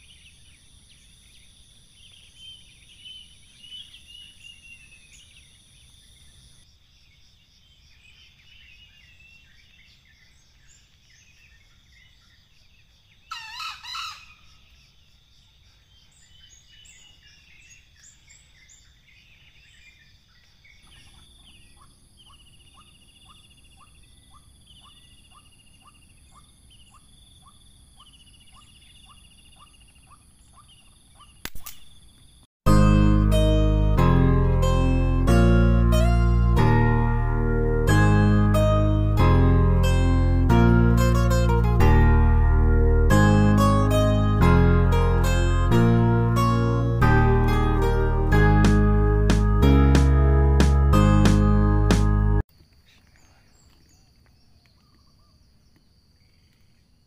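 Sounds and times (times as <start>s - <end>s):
faint birdsong: 0.0s - 34.0s, 52.6s - 57.0s
junglefowl crowing: 13.3s - 14.5s
sharp click: 31.4s - 32.0s.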